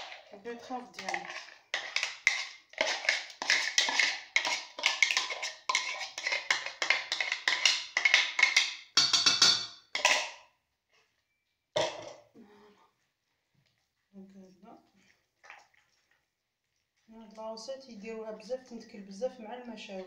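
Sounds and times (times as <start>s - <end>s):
spatula scraping a pot: 0.0s - 8.8s, 10.0s - 10.4s.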